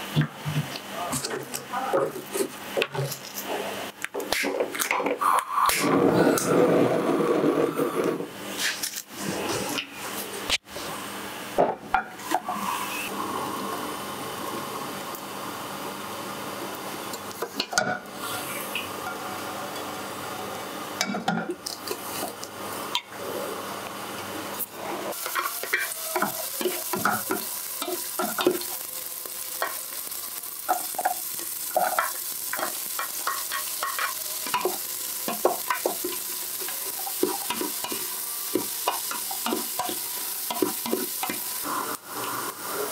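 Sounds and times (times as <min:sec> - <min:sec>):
gas flame hissing: 0:02.4 - 0:11.0, 0:20.0 - 0:42.9
hot oil sizzling and crackling: 0:11.4 - 0:42.9.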